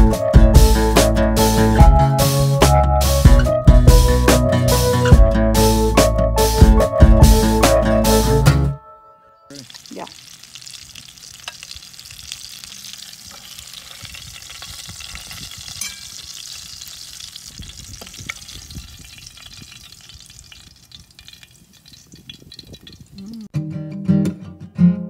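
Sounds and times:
hot oil sizzling in a skillet: 0:09.5 - 0:23.4.

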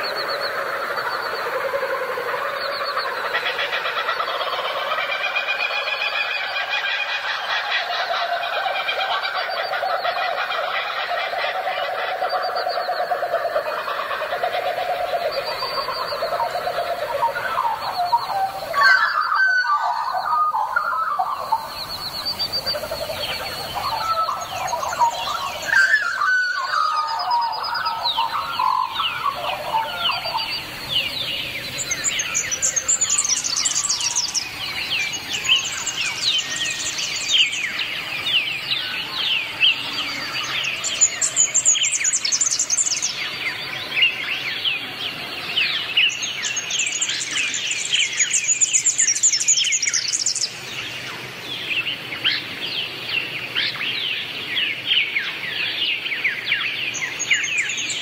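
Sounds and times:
low warbling bird calls: 0:00.0 - 0:58.0
high falling bird chirps: 0:12.2 - 0:43.6.

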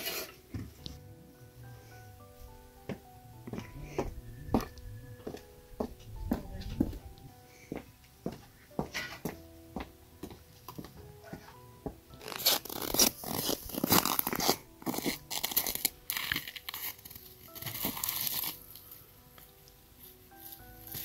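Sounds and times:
quiet background music: 0:00.0 - 0:21.0
dry straw rustling and tearing: 0:12.2 - 0:21.0.

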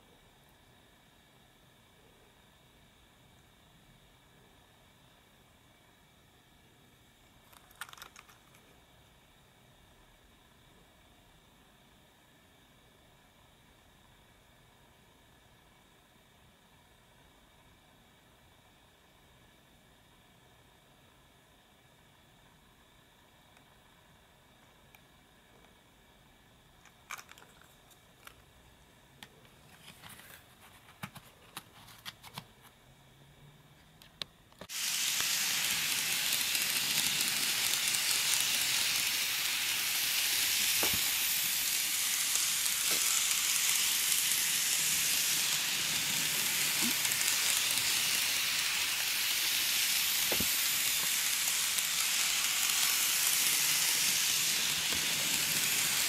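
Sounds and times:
small plastic clicks: 0:07.5 - 0:08.7
model train running on track: 0:34.7 - 0:56.0.

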